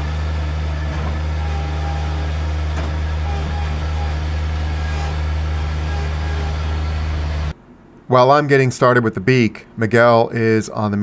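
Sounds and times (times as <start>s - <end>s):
construction machine engine droning: 0.0s - 7.6s.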